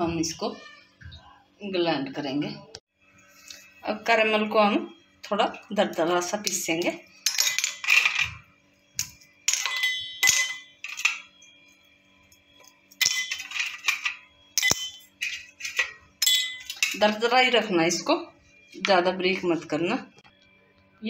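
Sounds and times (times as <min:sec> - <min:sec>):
caramel clinking in steel bowl: 0:09.5 - 0:11.3, 0:12.9 - 0:17.2.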